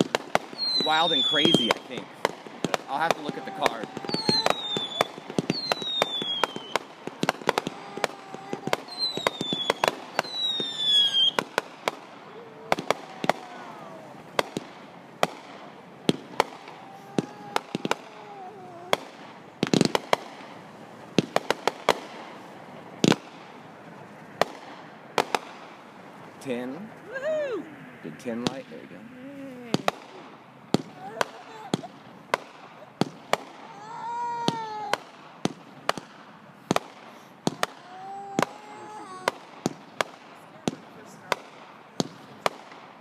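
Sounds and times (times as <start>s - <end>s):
heavy firework booms: 0.0s - 20.6s
fireworks bangs and crackles: 0.0s - 27.0s, 28.1s - 43.0s
firework whistles falling in pitch: 0.5s - 1.8s, 2.6s - 12.0s.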